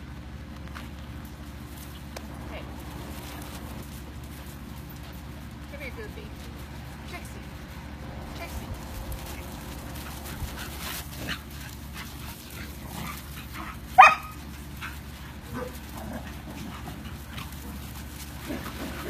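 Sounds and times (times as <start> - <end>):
dog barking: 14.0 - 14.4.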